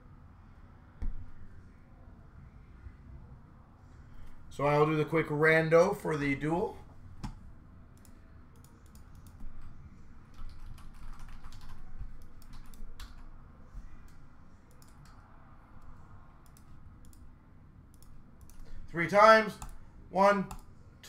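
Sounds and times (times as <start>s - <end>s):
typing on computer keyboard: 10.3s - 13.3s.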